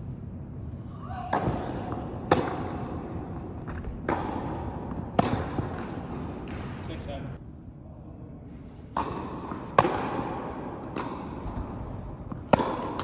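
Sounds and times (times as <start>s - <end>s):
tennis rackets striking ball: 1.3s - 6.8s, 8.9s - 13.0s.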